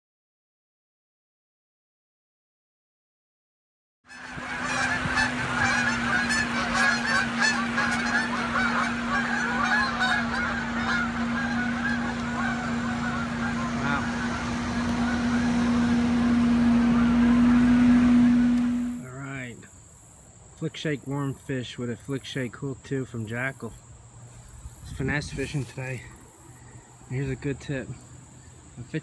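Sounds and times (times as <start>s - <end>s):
geese honking in flight: 4.1s - 19.2s
steady low hum: 4.1s - 19.6s.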